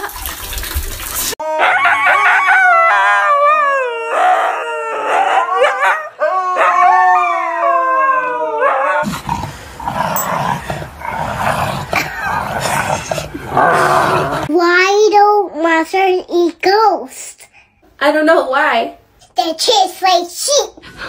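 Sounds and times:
dog howling: 1.4s - 9.1s.

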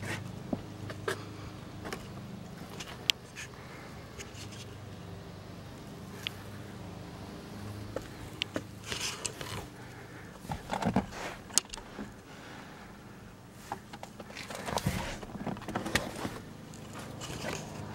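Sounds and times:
clicks and rustles of handling: 1.8s - 3.5s, 8.0s - 12.2s, 13.6s - 17.9s.

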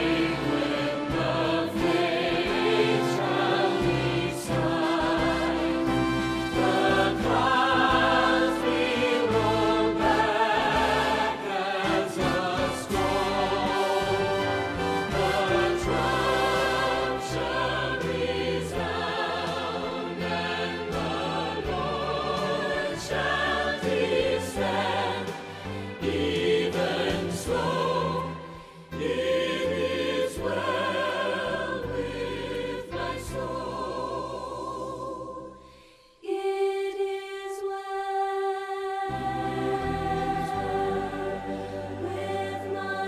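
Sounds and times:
instrumental accompaniment: 0.0s - 33.9s
choir singing: 0.0s - 43.0s.

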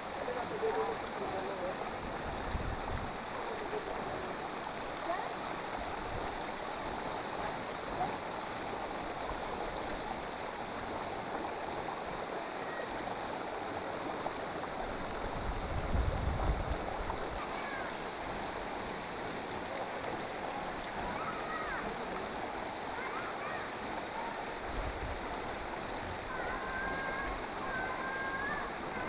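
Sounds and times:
waterfall splashing into pool: 0.0s - 29.0s.

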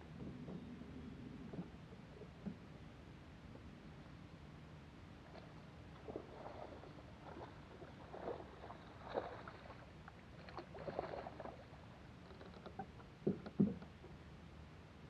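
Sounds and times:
faint low hum: 0.0s - 15.0s
water splashing: 6.1s - 9.8s.

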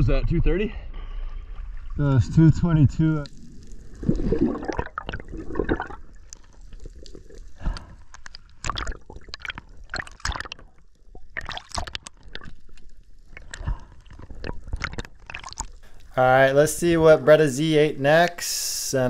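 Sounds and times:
underwater gurgling and bubbling: 3.2s - 15.8s
sharp clicks and crackles: 6.2s - 16.1s.

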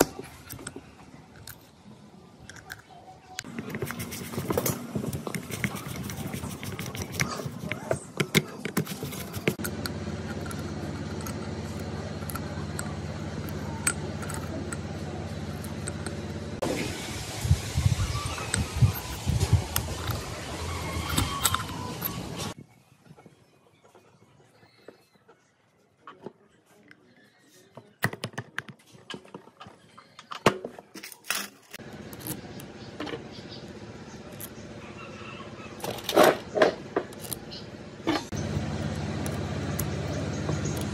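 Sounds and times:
low mechanical hum: 0.0s - 28.0s, 28.9s - 40.9s
metal parts clicking: 2.4s - 16.3s, 20.8s - 22.5s, 30.2s - 32.7s, 37.1s - 37.4s.

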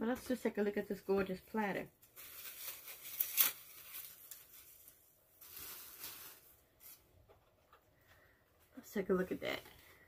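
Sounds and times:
plastic tearing and crinkling: 2.0s - 7.0s
plastic bag rustling: 2.0s - 7.3s.

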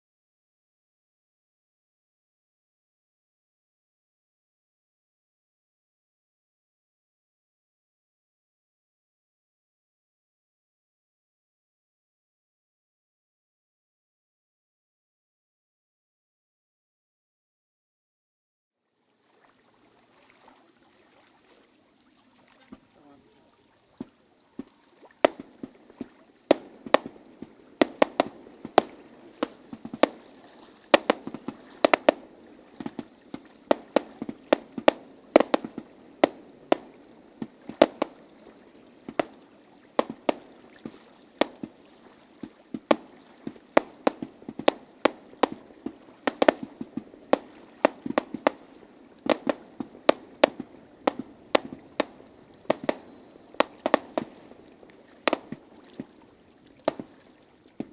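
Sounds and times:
fireworks bursting: 24.0s - 56.2s, 56.8s - 57.2s.

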